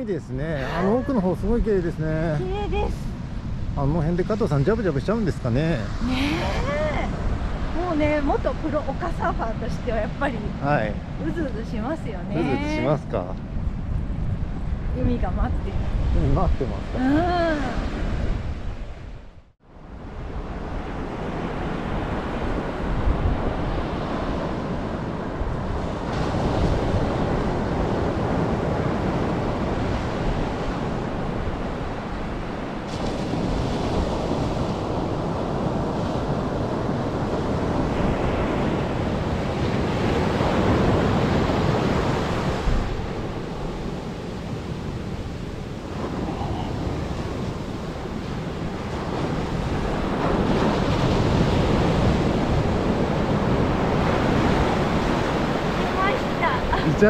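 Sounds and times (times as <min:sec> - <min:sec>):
ocean surf breaking on beach: 0:00.0 - 0:57.0.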